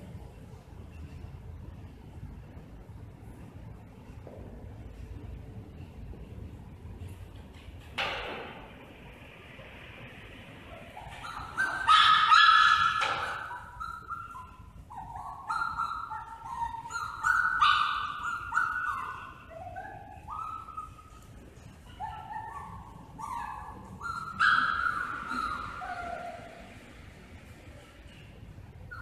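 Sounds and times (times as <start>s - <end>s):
dog whining: 10.7s - 26.8s, 28.8s - 29.0s.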